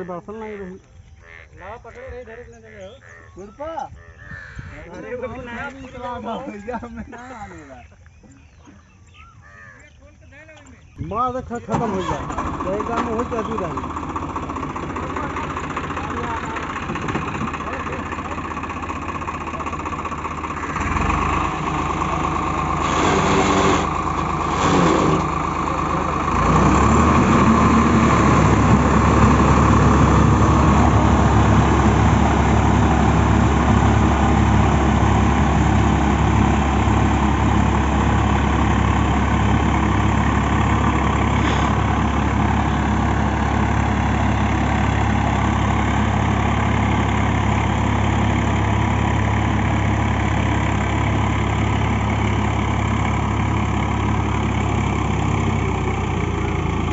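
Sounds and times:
tractor diesel engine running: 0:04.0 - 0:56.9
rotary tiller working mud: 0:11.7 - 0:56.9.

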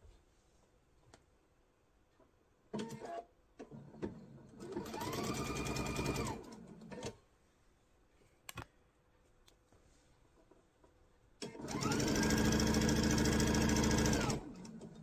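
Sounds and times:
sewing machine motor stitching: 0:04.6 - 0:07.2, 0:11.4 - 0:15.0.

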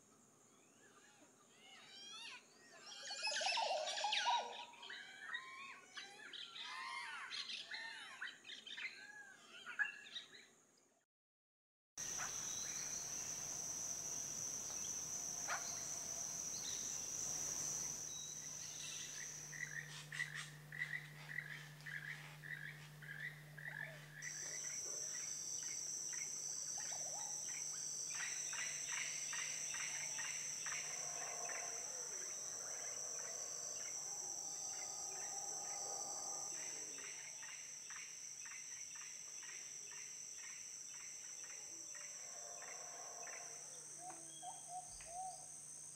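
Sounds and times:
insect trill: 0:01.5 - 0:09.0, 0:12.0 - 0:45.9
chirping calls: 0:12.0 - 0:32.0.

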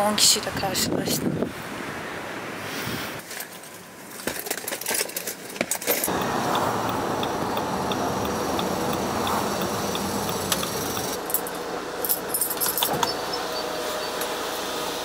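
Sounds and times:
light regular ticking: 0:06.1 - 0:11.6
diesel car engine running: 0:06.1 - 0:15.0
keys jangling: 0:11.2 - 0:13.1.

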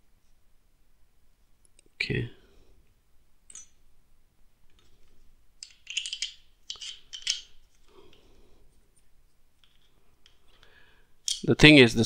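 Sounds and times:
plastic parts clicking and rattling: 0:04.7 - 0:08.2, 0:09.6 - 0:10.6, 0:11.2 - 0:11.5.

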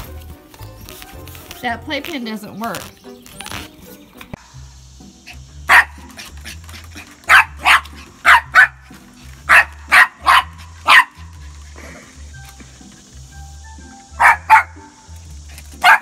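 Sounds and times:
faint background music: 0:00.0 - 0:16.0
small dog barking: 0:05.7 - 0:06.2, 0:07.2 - 0:08.8, 0:09.5 - 0:11.3, 0:14.2 - 0:14.8.

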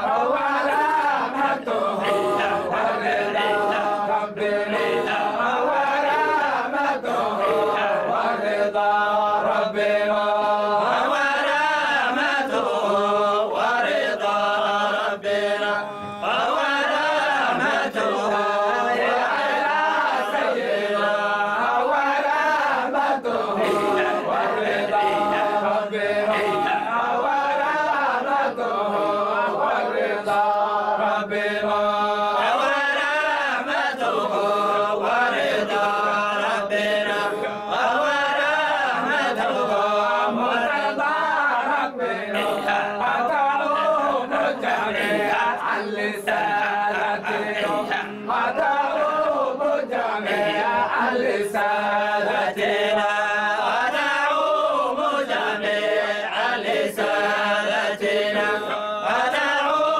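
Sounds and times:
men chanting together: 0:00.0 - 0:59.9.

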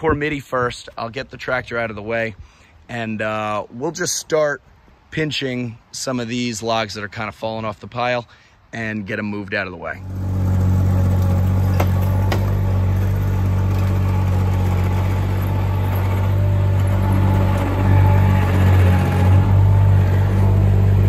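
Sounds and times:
small tracked machine engine: 0:09.9 - 0:21.0.

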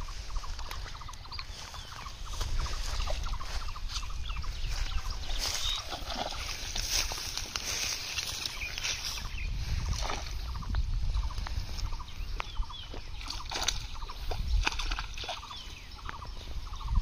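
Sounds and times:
water splashing and sloshing: 0:00.0 - 0:16.7
fish thrashing in water: 0:05.1 - 0:09.0, 0:13.2 - 0:15.8.

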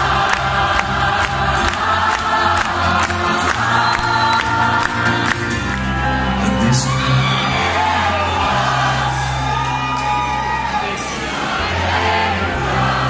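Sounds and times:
folk-rock band playing live: 0:00.0 - 0:08.1
crowd singing along: 0:00.0 - 0:13.0.

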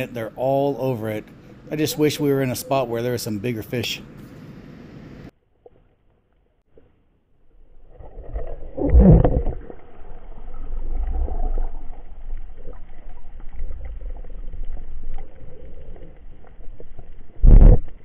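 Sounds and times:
muffled underwater rumble: 0:07.6 - 0:18.0.

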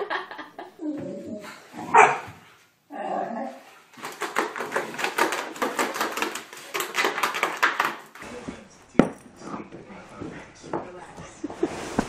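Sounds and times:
dogs barking and yipping: 0:01.8 - 0:02.4.

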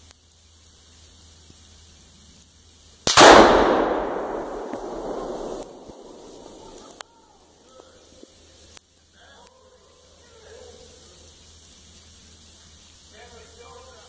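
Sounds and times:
explosive target blast: 0:03.1 - 0:07.0.

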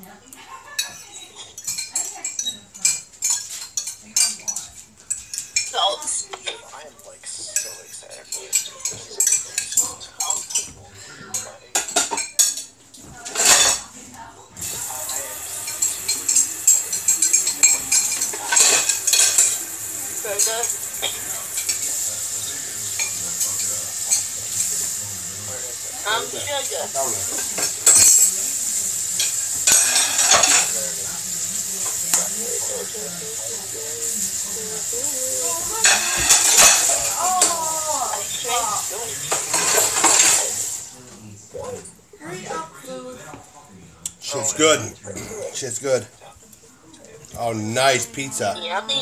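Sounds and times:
utensils clinking against dishes: 0:00.0 - 0:14.0, 0:14.6 - 0:42.0
food sizzling in a frying pan: 0:00.4 - 0:06.3, 0:07.4 - 0:10.7, 0:14.6 - 0:41.2, 0:47.4 - 0:49.0.

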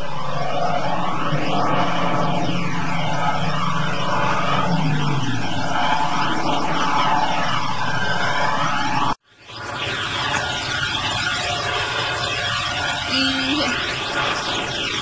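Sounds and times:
rushing water and spray: 0:09.3 - 0:15.0.

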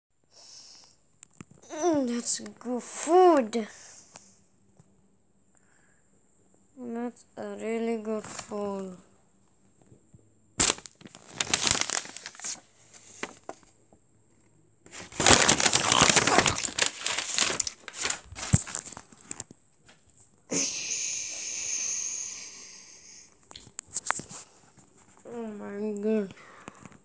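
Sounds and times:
steady hiss: 0:00.2 - 0:01.1, 0:02.2 - 0:04.6, 0:20.5 - 0:27.0
paper and cloth rustling: 0:10.6 - 0:13.7, 0:14.9 - 0:20.2.

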